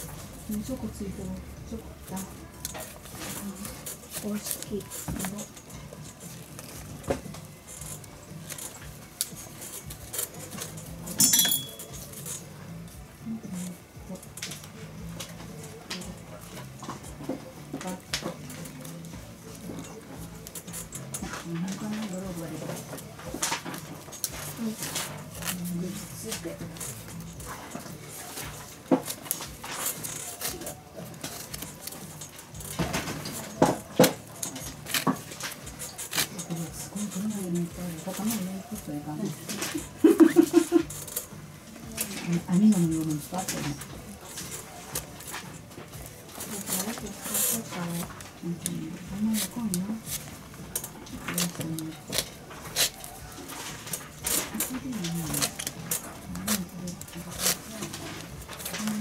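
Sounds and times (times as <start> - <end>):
leather rustling and creaking: 0.0 - 59.0
metallic clink with ring: 11.1 - 12.4
metal pliers clicking on leather: 34.0 - 36.4.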